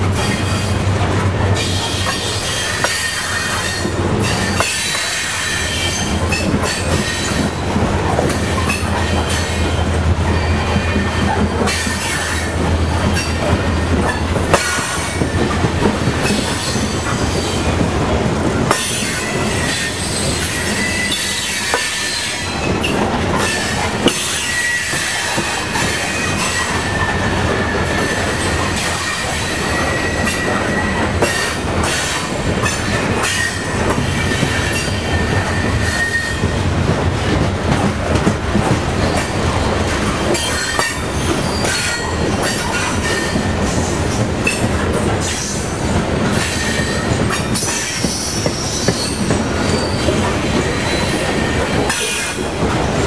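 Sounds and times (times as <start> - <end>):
train rumble: 0.0 - 53.0
train wheels squealing: 1.6 - 7.7, 8.3 - 12.6, 18.8 - 36.6, 40.3 - 52.4.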